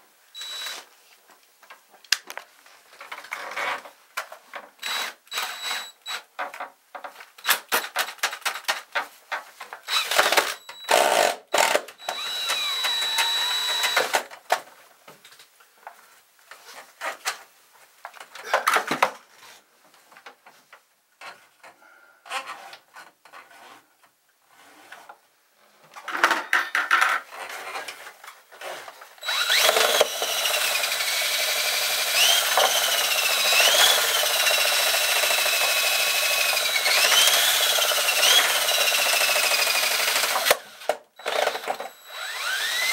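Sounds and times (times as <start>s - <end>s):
drill motor whine: 0.4s - 0.8s, 9.9s - 14.2s, 29.2s - 42.9s.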